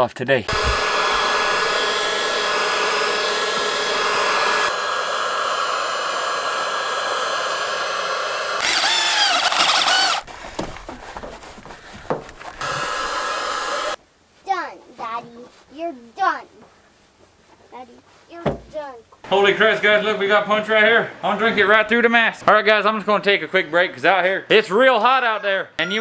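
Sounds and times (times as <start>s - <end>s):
heat gun blowing: 0.5s - 14.0s.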